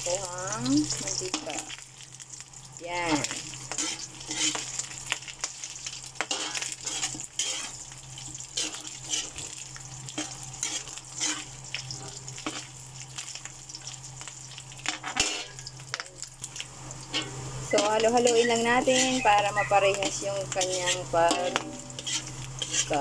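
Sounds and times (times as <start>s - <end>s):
pork sizzling in a wok: 0.0s - 23.0s
metal spoon scraping a wok: 3.7s - 5.2s, 6.2s - 7.8s, 8.4s - 9.6s, 10.2s - 12.7s, 14.8s - 16.0s, 17.1s - 23.0s.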